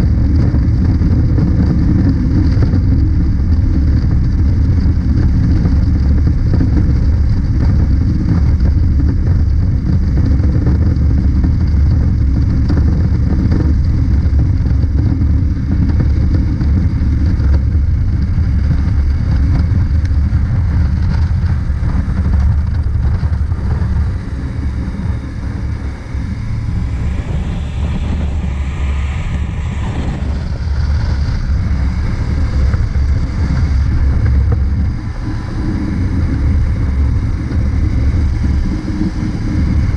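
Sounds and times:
motorcycle engine drone: 0:00.0 - 0:39.9
wind rumble on microphone: 0:00.0 - 0:39.9
higher sound rising and falling: 0:24.6 - 0:32.4.

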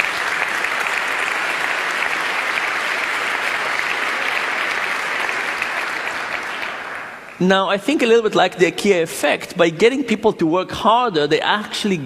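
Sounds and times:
large audience applauding: 0:00.0 - 0:07.5.

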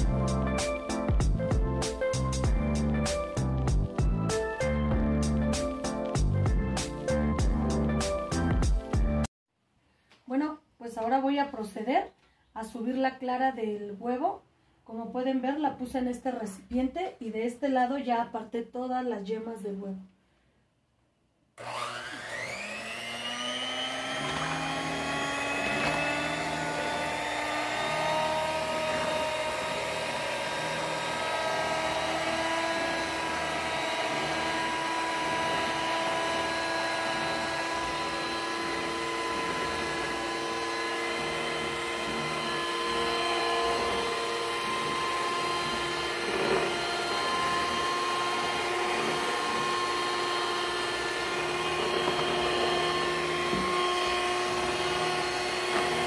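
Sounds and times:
electric mixer whining: 0:21.6 - 0:56.0.

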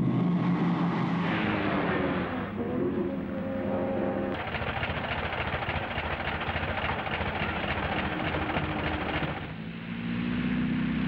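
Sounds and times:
biplane engine and propeller clatter: 0:00.0 - 0:09.8.

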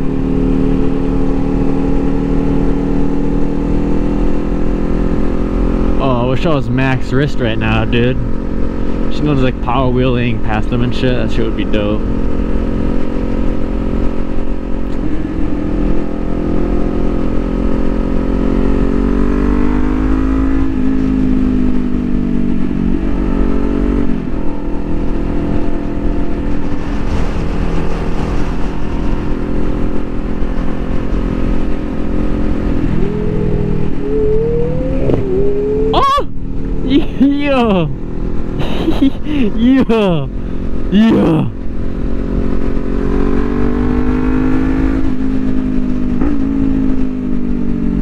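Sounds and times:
motorcycle engine accelerating: 0:00.0 - 0:48.0
wind rush: 0:24.8 - 0:38.1.

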